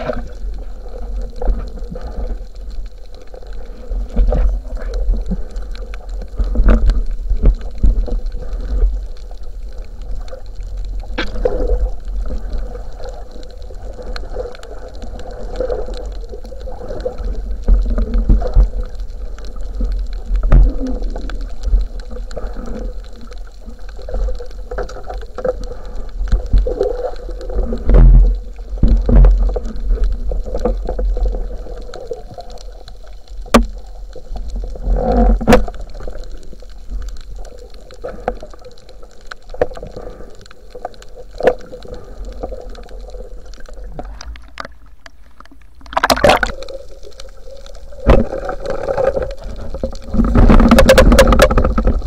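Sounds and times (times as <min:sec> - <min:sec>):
underwater rumble of moving water: 0:00.0 - 0:52.0.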